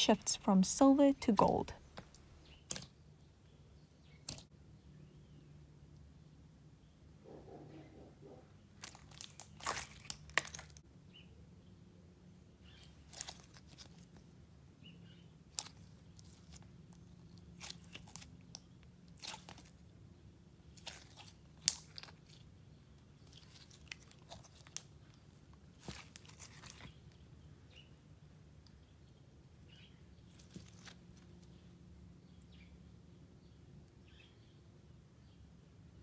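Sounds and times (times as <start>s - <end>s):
slime crunching and popping: 8.8s - 10.8s, 17.6s - 19.8s, 20.7s - 22.4s, 23.2s - 25.0s, 25.8s - 27.0s.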